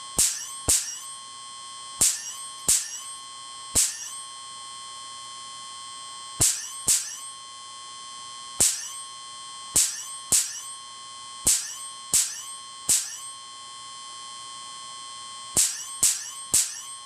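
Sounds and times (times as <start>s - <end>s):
high-pitched whine: 0.0s - 17.0s
electric spark snaps: 0.2s - 1.0s, 2.0s - 3.1s, 3.8s - 4.2s, 6.4s - 7.2s, 8.6s - 9.0s, 9.8s - 10.7s, 11.4s - 13.3s, 15.6s - 17.0s.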